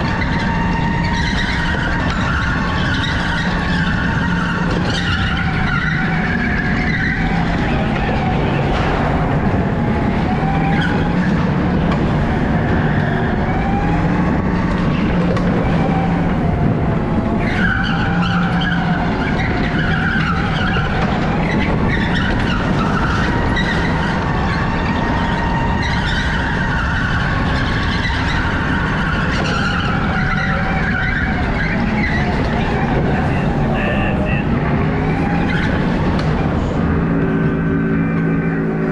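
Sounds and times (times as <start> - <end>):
tyres squealing: 0.0 - 8.9, 17.4 - 38.9
electric go-kart whining: 0.0 - 38.9.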